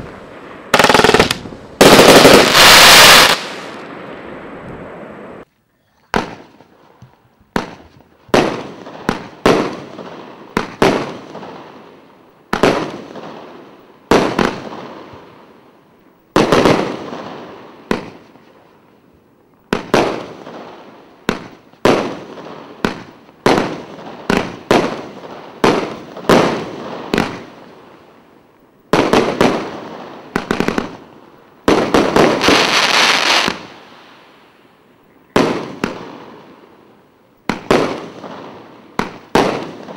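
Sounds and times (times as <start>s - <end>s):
firework bangs: 0.0s - 5.4s, 6.1s - 6.7s, 7.5s - 11.8s, 12.5s - 13.5s, 19.7s - 27.7s, 28.9s - 34.4s, 35.3s - 36.6s, 37.4s - 39.9s.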